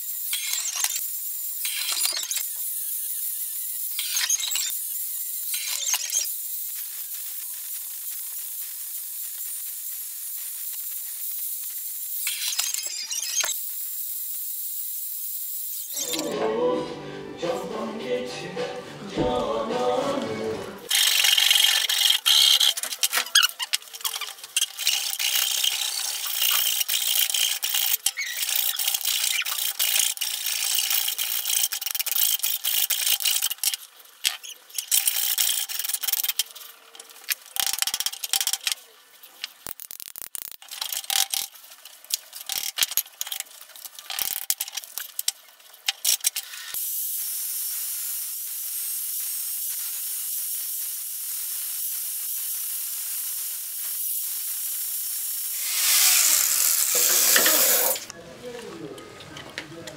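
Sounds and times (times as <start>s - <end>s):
angle grinder sanding wood: 55.5s - 58.1s.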